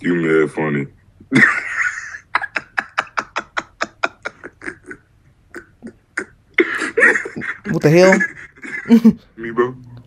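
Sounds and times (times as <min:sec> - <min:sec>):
man laughing hard: 0:01.3 - 0:05.0, 0:06.6 - 0:09.2.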